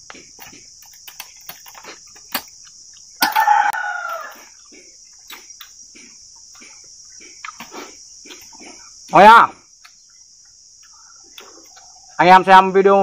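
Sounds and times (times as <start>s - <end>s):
crickets chirping: 0.0s - 13.0s
rooster crowing: 3.2s - 4.7s.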